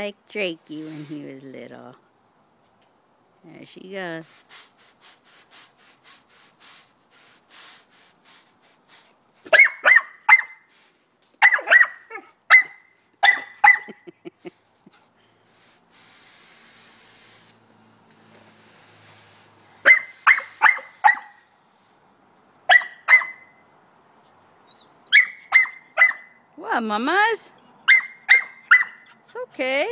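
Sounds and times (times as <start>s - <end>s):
broom bristles brushing concrete: 0.4s - 1.6s, 3.9s - 9.6s, 14.3s - 22.2s
puppy barking in yaps: 9.5s - 10.6s, 11.4s - 14.0s, 19.8s - 21.4s, 22.7s - 23.5s, 25.1s - 26.4s, 27.8s - 29.1s.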